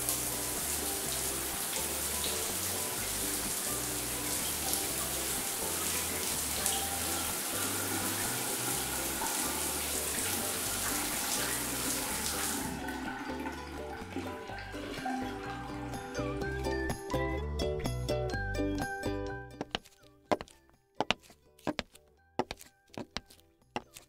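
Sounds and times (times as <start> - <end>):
shower water running: 0.0 - 16.4
soft background music: 0.0 - 24.0.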